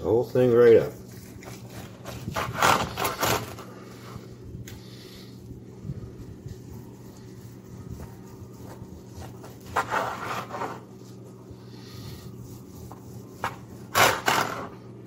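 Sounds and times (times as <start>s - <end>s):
low steady hum: 0.0s - 15.0s
knife sawing through roast meat: 6.2s - 14.4s.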